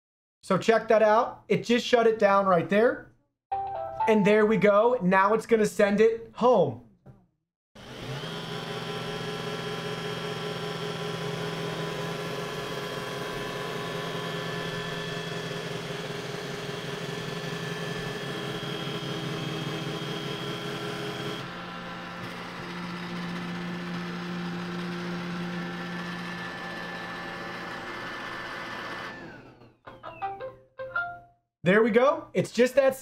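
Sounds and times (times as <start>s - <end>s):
robot vacuum motor hum: 12.0s - 30.3s.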